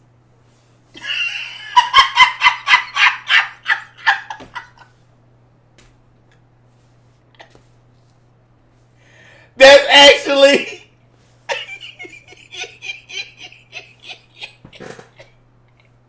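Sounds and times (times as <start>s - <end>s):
man laughing hard: 1.0s - 4.9s, 11.5s - 16.0s.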